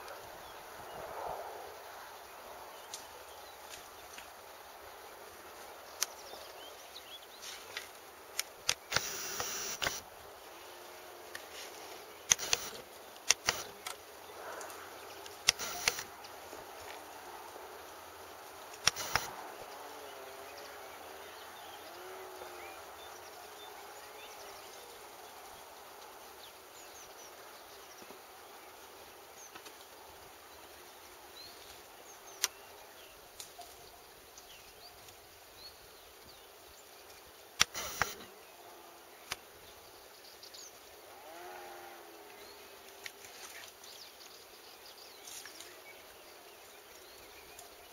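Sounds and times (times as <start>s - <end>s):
faint background hiss: 0.0s - 47.9s
faint distant sounds: 0.0s - 47.9s
camera handling clicks: 18.8s - 19.3s.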